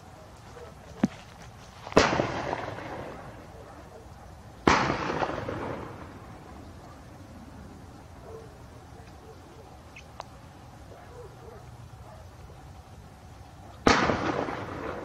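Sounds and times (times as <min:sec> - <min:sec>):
gunshots with echo: 0:13.9 - 0:15.0.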